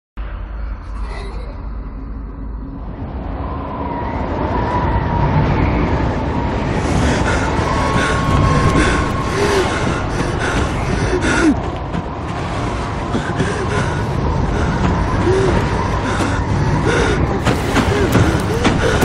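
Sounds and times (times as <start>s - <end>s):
blizzard wind rushing: 0.2s - 19.0s
man gasping breaths: 7.0s - 11.8s, 12.8s - 19.0s.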